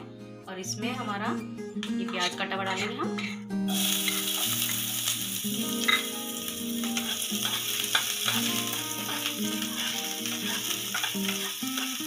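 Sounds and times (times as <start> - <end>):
onion sizzling in a frying pan: 3.7 - 12.0.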